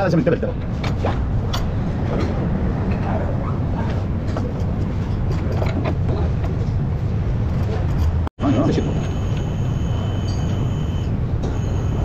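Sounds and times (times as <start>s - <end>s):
workshop machinery rumble: 3.6s - 12.0s.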